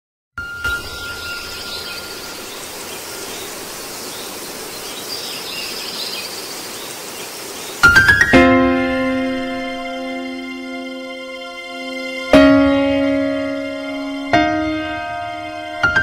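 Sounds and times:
steady hissing ambient noise: 0.7 - 7.9
music with sharp strikes and chord: 7.9 - 16.0.

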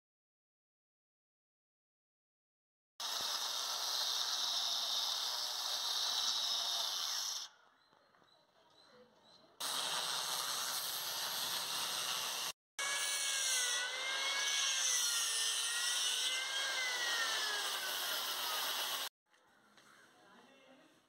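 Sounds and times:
angle grinder cutting stone: 3.0 - 7.5, 9.6 - 19.1.

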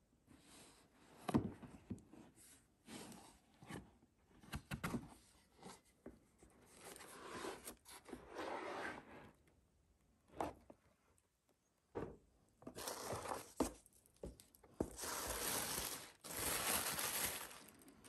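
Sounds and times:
box lid papery rustle: 15.0 - 17.7.

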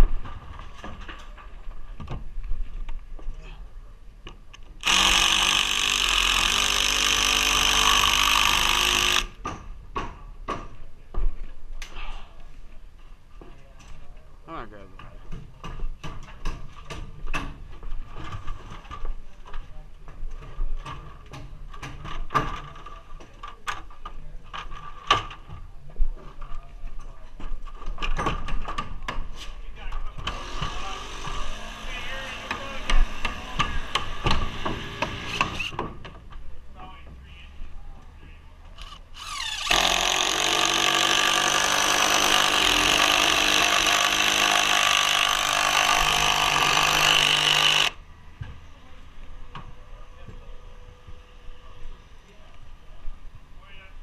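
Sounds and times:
cordless impact driver driving screw: 4.8 - 9.4, 38.8 - 48.0.

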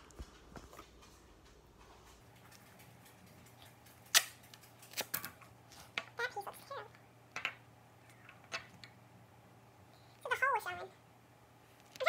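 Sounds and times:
duct tape ripping off roll: 4.1 - 5.2.

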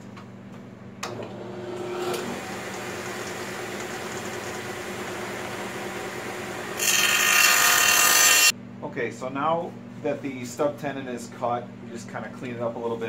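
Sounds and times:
table saw cutting wood: 1.1 - 8.5.

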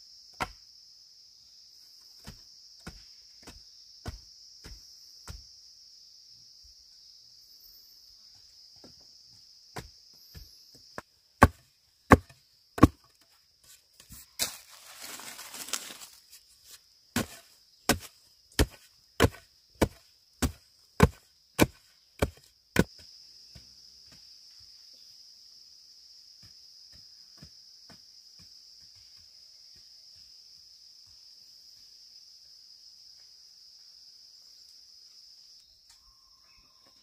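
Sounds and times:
insects buzzing: 0.0 - 37.0
blade chopping bamboo: 11.4 - 13.2, 17.2 - 22.9
bamboo crackling and splintering: 14.4 - 16.3.

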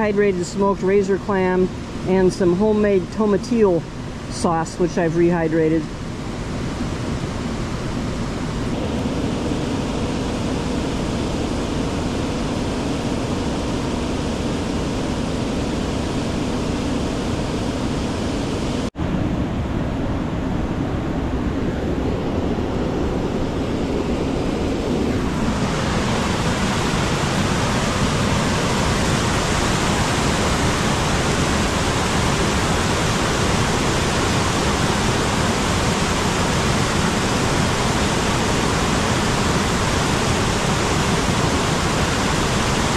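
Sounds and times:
waterfall rushing: 25.1 - 42.9.

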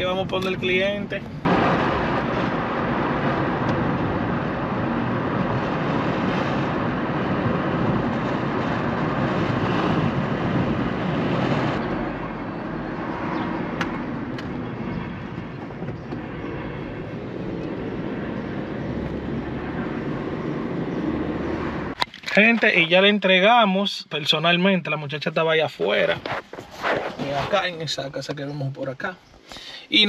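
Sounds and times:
road and engine noise inside car: 0.0 - 22.0.

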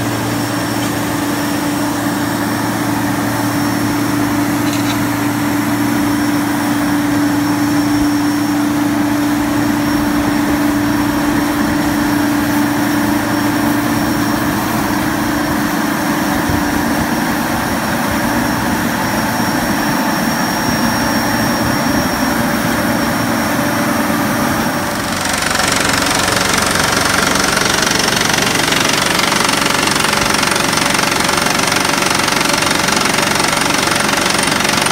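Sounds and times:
diesel engine running: 0.0 - 34.9
rock drill hammering: 25.0 - 34.9.

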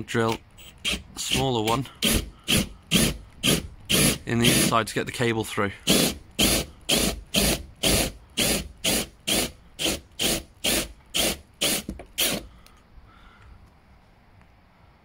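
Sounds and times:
hole saw cutting metal: 0.6 - 4.8, 5.8 - 12.4.

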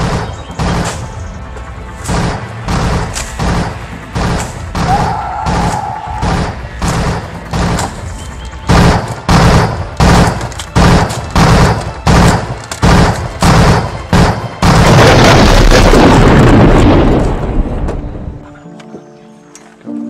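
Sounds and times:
loud gunshots: 0.0 - 1.2, 2.0 - 16.5
continuous blasting: 0.0 - 18.4.

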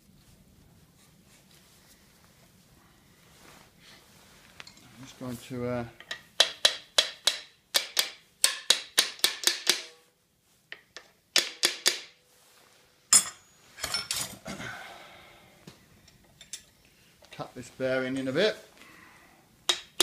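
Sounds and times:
hammer tapping metal: 6.0 - 10.1, 11.0 - 12.2.

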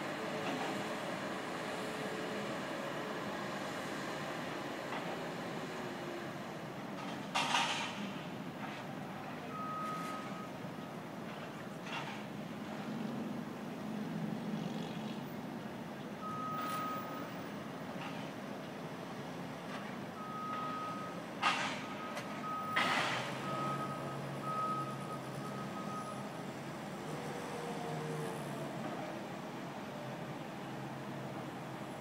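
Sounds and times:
low rumble of truck machinery: 0.0 - 32.0
forklift reversing alarm beeping: 9.5 - 10.6, 16.2 - 17.4, 20.1 - 26.4.

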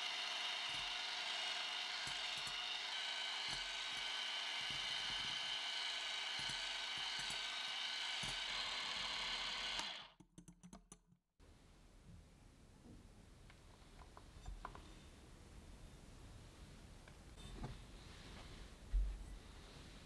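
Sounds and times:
electric hand mixer whining: 0.0 - 10.2.

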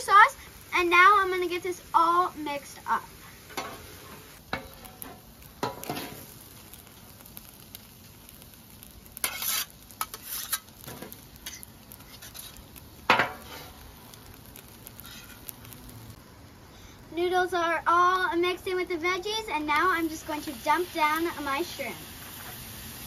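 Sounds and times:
food sizzling on hot plate: 0.0 - 23.0
metal spatulas scraping griddle: 3.5 - 6.2, 9.2 - 13.8, 14.9 - 15.5.

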